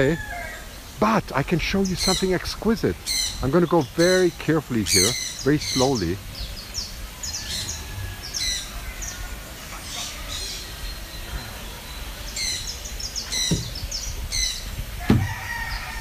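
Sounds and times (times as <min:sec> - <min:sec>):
rooster crowing: 0:00.0 - 0:00.8, 0:07.2 - 0:09.2, 0:14.9 - 0:16.0
birds chirping: 0:00.0 - 0:16.0
knocks: 0:13.4 - 0:13.9, 0:15.1 - 0:15.3.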